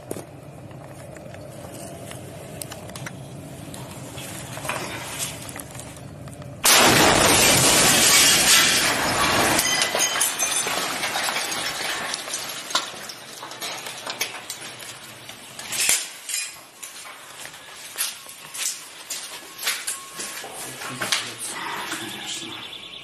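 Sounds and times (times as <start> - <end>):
debris and glass clattering: 4.1 - 20.4
very loud explosion: 6.6 - 9.6.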